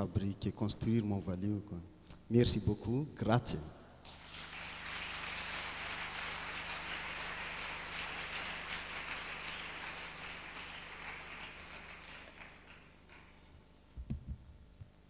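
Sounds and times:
low electrical hum: 0:00.0 - 0:15.0
audience applauding: 0:04.0 - 0:13.4.

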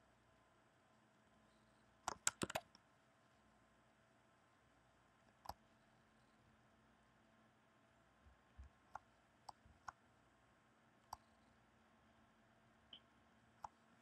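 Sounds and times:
computer mouse clicks: 0:02.0 - 0:02.8, 0:05.3 - 0:05.6, 0:11.0 - 0:11.4, 0:13.6 - 0:13.8.

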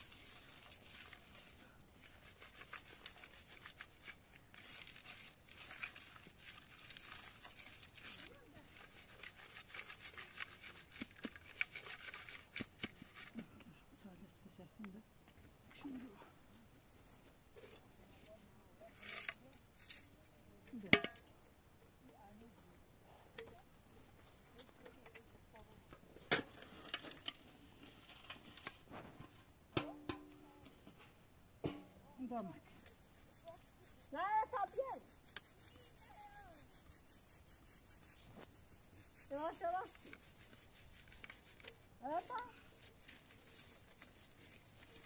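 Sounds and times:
rustling on plastic groundsheet: 0:00.0 - 0:13.4, 0:33.3 - 0:45.0.

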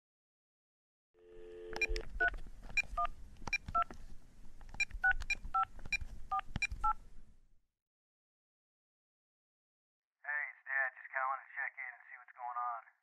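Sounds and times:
dial tone: 0:01.2 - 0:02.0
telephone keypad tones: 0:01.2 - 0:03.9.

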